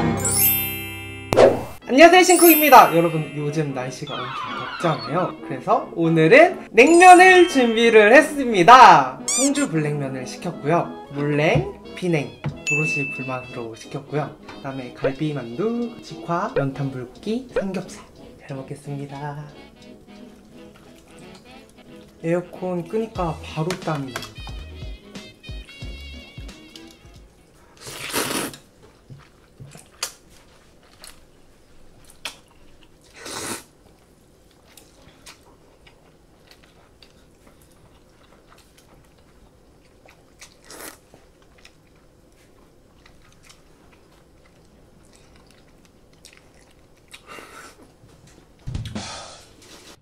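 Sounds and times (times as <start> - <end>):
quiet chewing: 19.5 - 22.2, 26.6 - 48.4
loud noodle slurps: 27.8 - 28.7, 33.1 - 33.7, 40.6 - 41.0.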